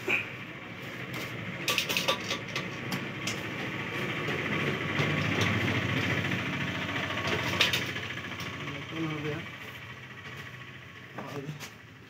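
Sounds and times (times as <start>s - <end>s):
motorcycle engine idling: 0.0s - 12.0s
sharp clicks and knocks: 1.1s - 5.7s.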